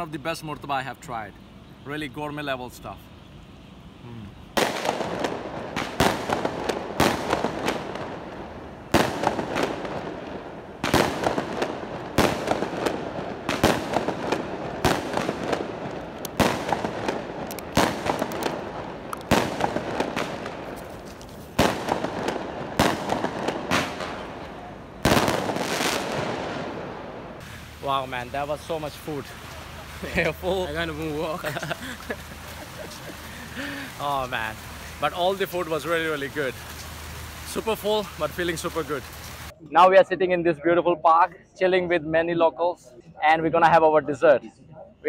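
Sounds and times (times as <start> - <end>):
fireworks banging: 4.5 - 39.5.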